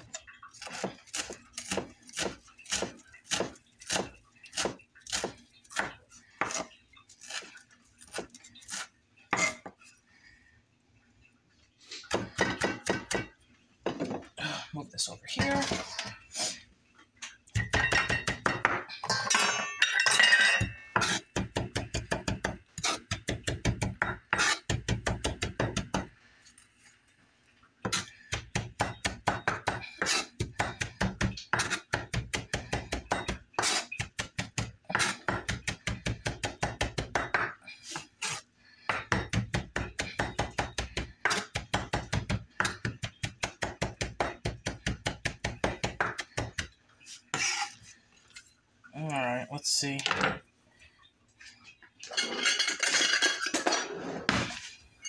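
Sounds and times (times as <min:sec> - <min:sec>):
knife chopping on cutting board: 0:21.0 - 0:26.1.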